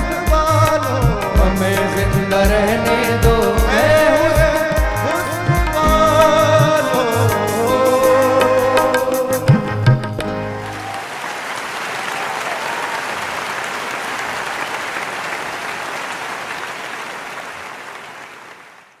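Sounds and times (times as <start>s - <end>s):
audience applauding: 10.5s - 19.0s.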